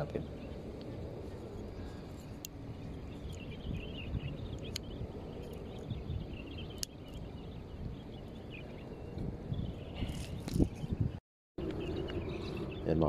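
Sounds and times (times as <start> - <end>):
wind rumble on microphone: 0.0 - 13.0
sharp clicks: 6.7 - 7.2.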